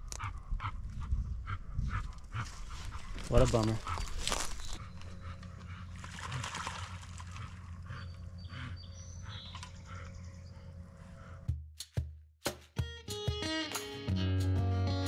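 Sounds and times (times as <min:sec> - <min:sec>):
water sloshing and splashing: 0:05.9 - 0:07.9.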